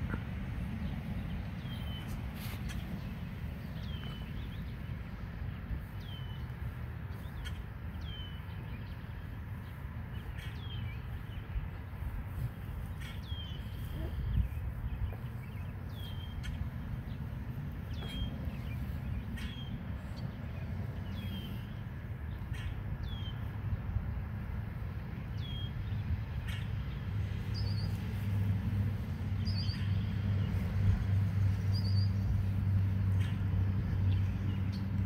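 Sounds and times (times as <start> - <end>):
motor vehicle rumble: 0.0 - 35.0
small bird calling: 12.8 - 16.6.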